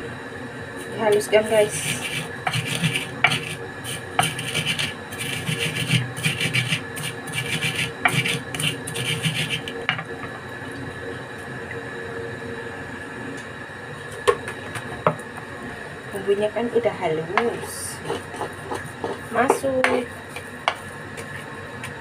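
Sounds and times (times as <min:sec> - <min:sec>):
pestle grinding in clay mortar: 0:01.7 - 0:10.0, 0:17.4 - 0:22.0.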